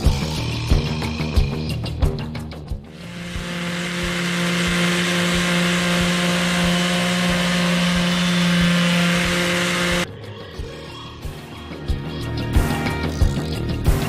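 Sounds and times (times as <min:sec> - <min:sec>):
orbital sander on wood: 0:03.0 - 0:10.1.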